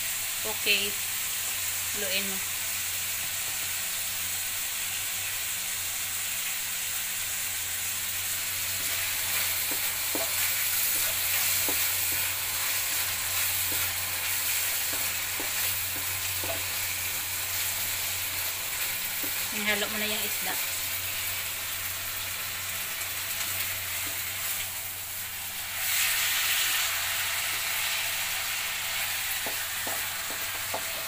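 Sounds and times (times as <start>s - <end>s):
food sizzling in a wok: 0.0s - 31.0s
wooden spatula scraping a wok: 8.8s - 17.0s.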